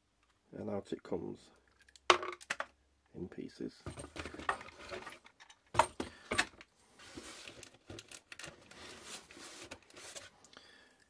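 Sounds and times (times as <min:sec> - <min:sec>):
plastic parts rattling: 0:03.9 - 0:08.8.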